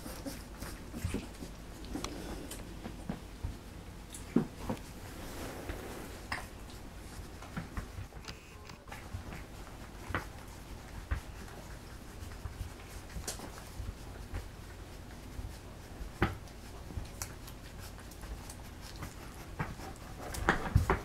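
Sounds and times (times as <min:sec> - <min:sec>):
puppies making soft sounds: 0:00.0 - 0:05.0, 0:06.2 - 0:21.0.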